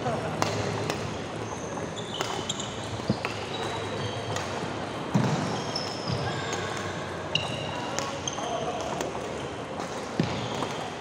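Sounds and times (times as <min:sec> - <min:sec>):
shoes squeaking on floor: 0:01.4 - 0:04.4, 0:05.2 - 0:08.8
racket striking shuttlecock: 0:02.2 - 0:11.0.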